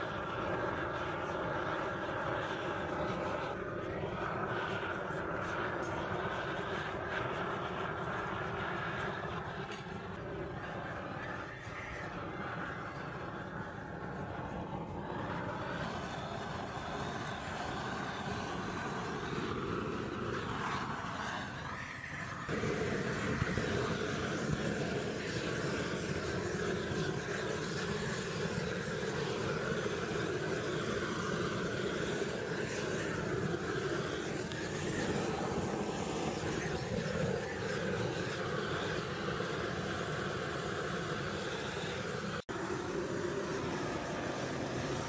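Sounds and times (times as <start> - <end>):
blowtorch flame hissing: 0.0 - 45.0.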